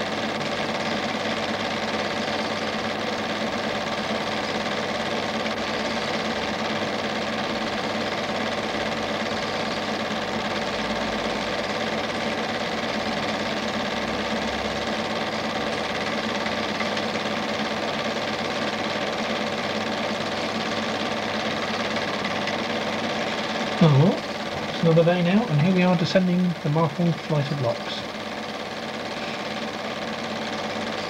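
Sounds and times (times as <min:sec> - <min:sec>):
film projector whirring: 0:00.0 - 0:31.0.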